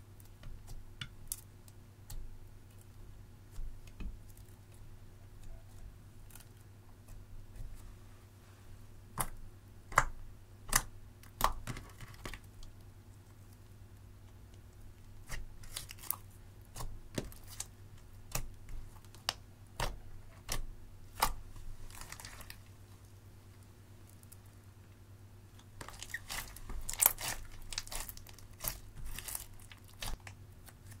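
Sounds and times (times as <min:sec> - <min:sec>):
soft slime crackle: 0:14.4 - 0:17.7, 0:18.3 - 0:24.6, 0:25.5 - 0:31.0.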